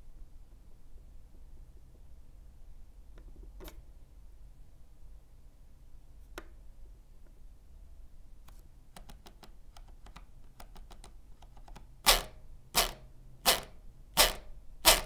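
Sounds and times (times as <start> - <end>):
mouse scroll wheel ticking: 9.0 - 15.0.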